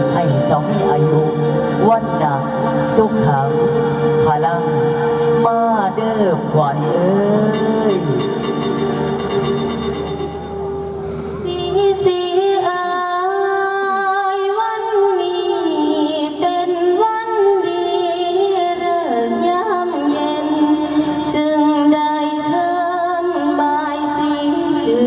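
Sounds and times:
backing music: 0.0s - 13.1s
woman singing long held notes: 10.1s - 25.0s.

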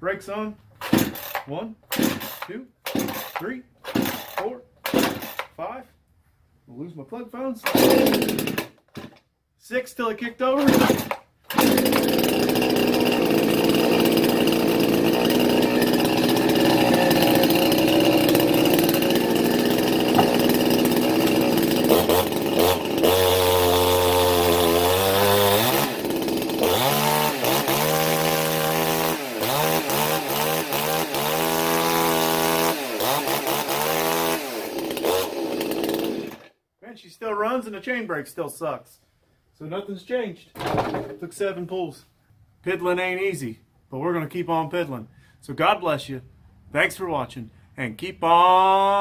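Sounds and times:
chainsaw engine running: 0.8s - 5.5s, 7.6s - 9.1s, 10.6s - 36.5s.

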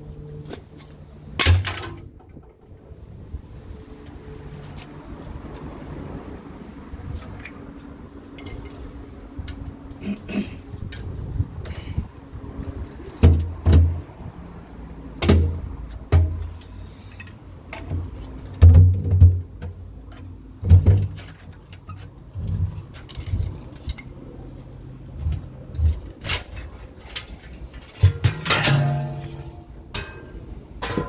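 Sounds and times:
metal manhole cover clanking: 1.4s - 2.5s, 25.2s - 31.0s
metal scraping: 20.8s - 31.0s.

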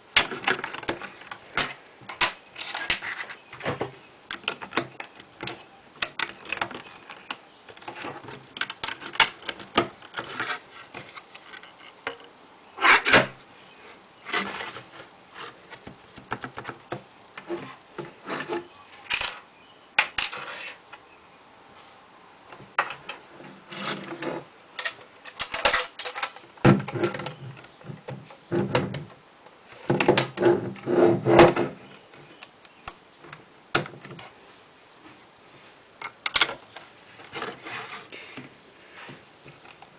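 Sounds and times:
plastic bricks clicking and clattering: 23.7s - 27.6s.

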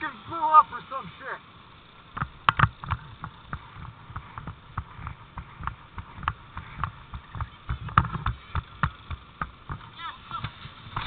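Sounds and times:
footsteps: 2.2s - 11.0s.

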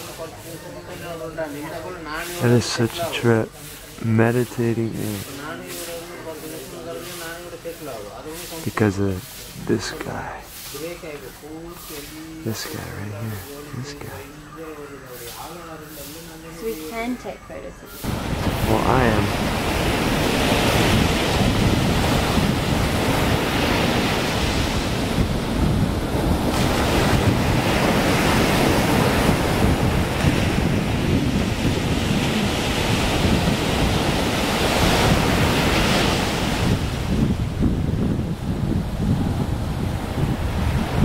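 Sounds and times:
sea surf washing in: 0.0s - 14.4s, 17.9s - 41.0s
wind buffeting microphone: 18.0s - 41.0s.

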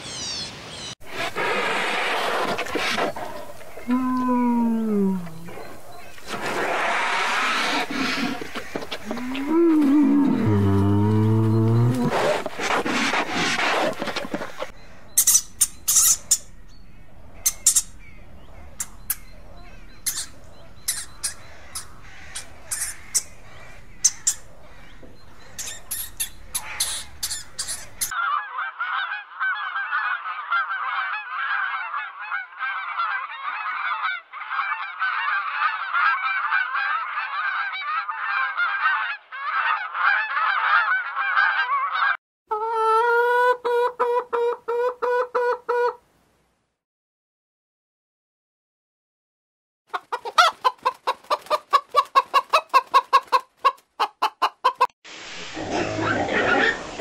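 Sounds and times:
geese honking: 1.1s - 42.2s
faint hum: 3.4s - 6.2s.

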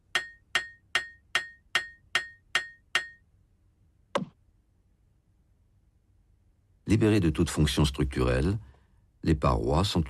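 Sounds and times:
sharp ringing metallic strikes: 0.2s - 3.2s.

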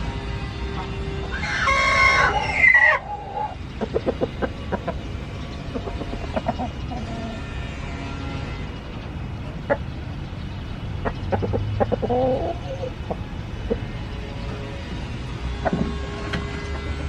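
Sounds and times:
rooster crowing: 1.3s - 3.5s
chicken clucks: 1.6s - 5.0s, 5.7s - 7.2s, 11.0s - 13.8s.

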